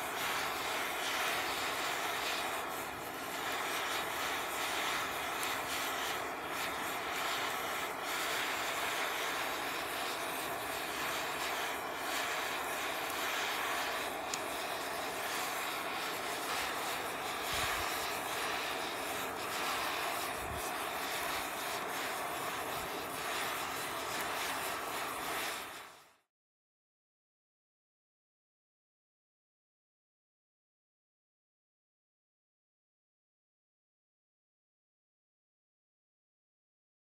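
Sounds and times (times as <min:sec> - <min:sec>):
gas torch hissing: 0:00.0 - 0:26.2.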